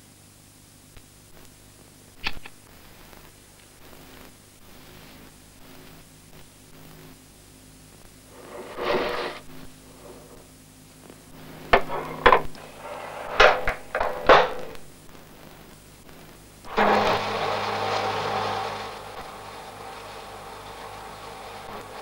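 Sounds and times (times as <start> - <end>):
plates clattering into dishwasher rack: 11.8 - 12.5, 13.2 - 14.8.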